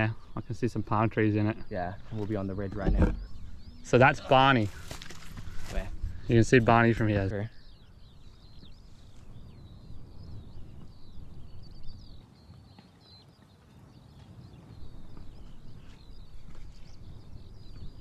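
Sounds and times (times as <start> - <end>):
small birds twittering: 0.0 - 18.0
footsteps on rocky trail: 2.0 - 6.2, 12.2 - 18.0.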